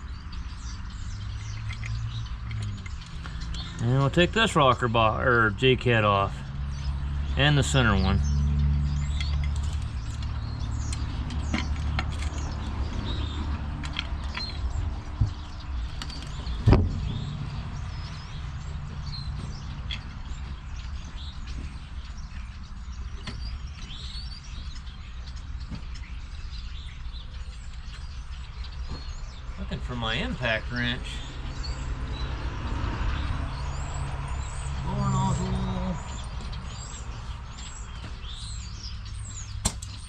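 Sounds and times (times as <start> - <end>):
small birds chirping: 0.0 - 40.0
sharp knocks: 16.5 - 17.7.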